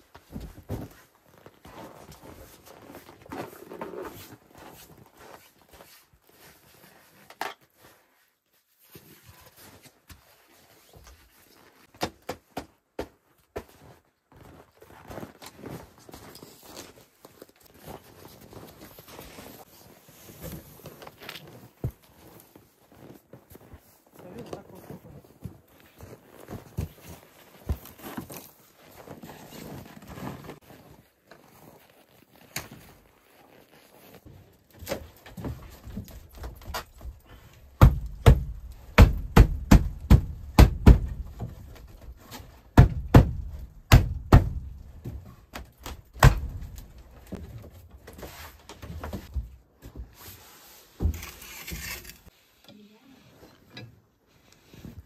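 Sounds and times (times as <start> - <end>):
heavy thuds: 36.9 - 42.0, 42.7 - 45.2
scraping rustle: 50.2 - 52.5.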